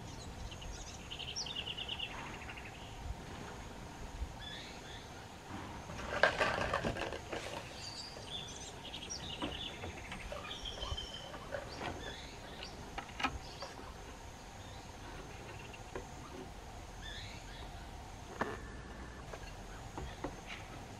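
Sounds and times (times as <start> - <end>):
birds chirping: 0.0 - 20.9
faint insect drone: 0.0 - 20.9
rustling and crackling: 5.4 - 14.3.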